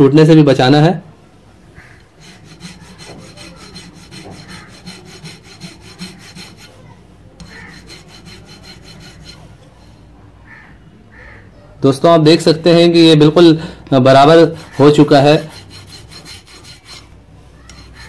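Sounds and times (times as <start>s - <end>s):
hand file rasping: 1.8s - 10.0s, 14.1s - 18.0s.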